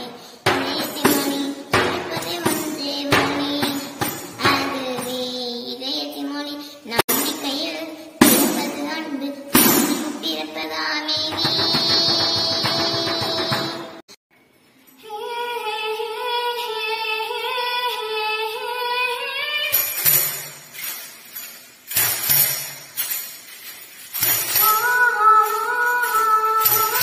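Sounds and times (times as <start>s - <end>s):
tambourine jingling: 0.0s - 5.4s, 7.0s - 10.3s, 19.6s - 27.0s
girl singing: 0.0s - 14.0s, 14.9s - 20.2s, 24.2s - 27.0s.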